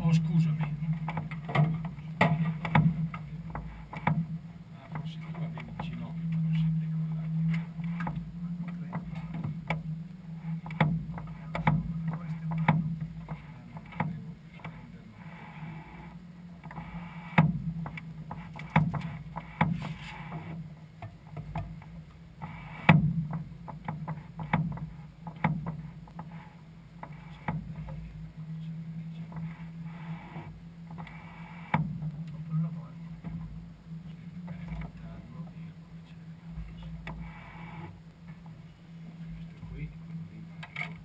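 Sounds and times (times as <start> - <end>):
airframe knocks and rattles: 0.0 - 6.1, 16.7 - 26.4
propeller engine drone: 0.0 - 41.0.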